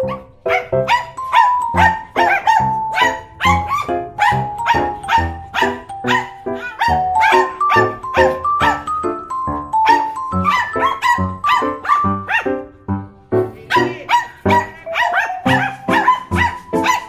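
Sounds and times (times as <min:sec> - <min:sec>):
dogs barking: 0:00.0 - 0:12.8, 0:13.6 - 0:17.0
background music with steady beat: 0:00.0 - 0:17.0.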